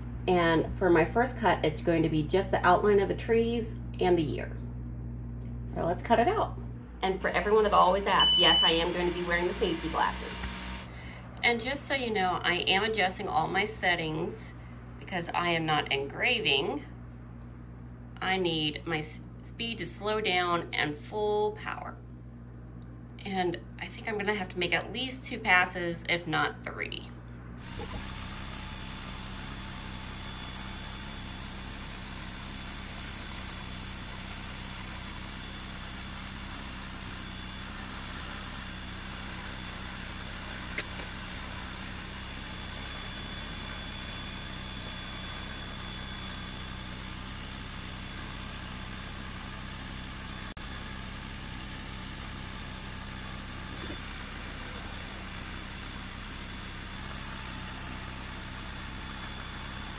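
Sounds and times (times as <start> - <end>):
laser engraver machine hum: 7.0 - 10.9, 27.6 - 59.9.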